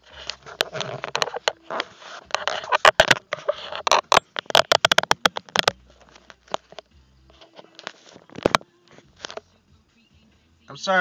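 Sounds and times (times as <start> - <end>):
rustling: 0.0 - 9.6
phone handling clicks and knocks: 0.2 - 6.8, 7.8 - 8.6.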